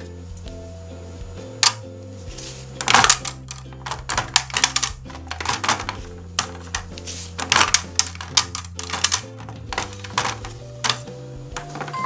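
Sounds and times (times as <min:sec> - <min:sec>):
soft background music: 0:00.0 - 0:12.0
plastic toy clicking and tapping: 0:02.8 - 0:12.0.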